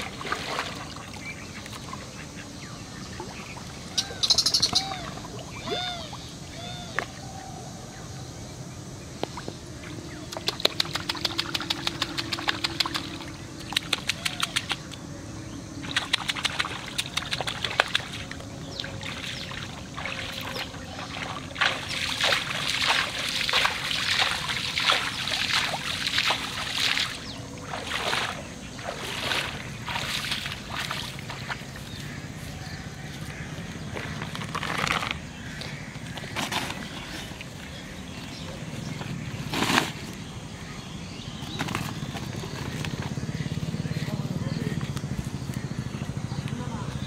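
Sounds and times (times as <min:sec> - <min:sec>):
person wading through water: 0:00.0 - 0:04.0, 0:15.8 - 0:39.4
hands splashing in water: 0:19.0 - 0:31.6.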